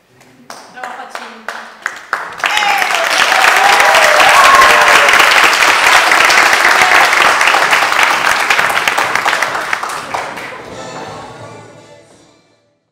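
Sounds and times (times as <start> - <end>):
audience applauding: 1.5 - 10.7.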